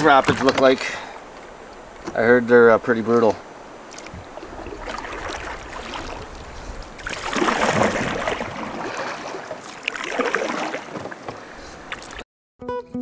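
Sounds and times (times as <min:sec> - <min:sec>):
paddle splashing and dripping: 0:00.0 - 0:12.2
loud paddle splash: 0:03.6 - 0:12.2.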